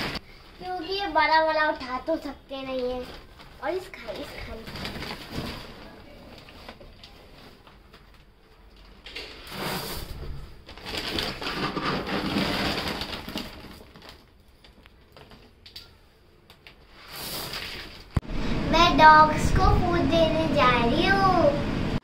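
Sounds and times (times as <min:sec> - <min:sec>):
plastic bags rustling: 0:00.0 - 0:18.2
dry kibble crunching and rattling: 0:10.7 - 0:15.6.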